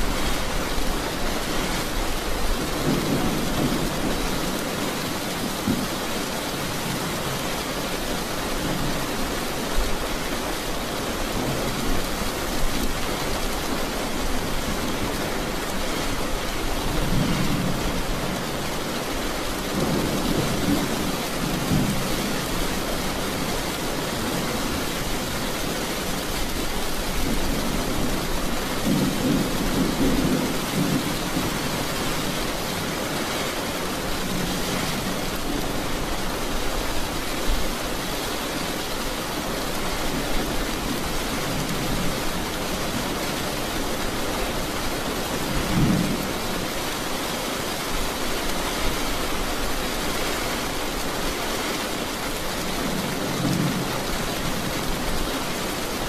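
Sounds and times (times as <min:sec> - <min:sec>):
steady rain hissing: 0:00.0 - 0:56.0
low thunder rumbling: 0:27.1 - 0:33.0.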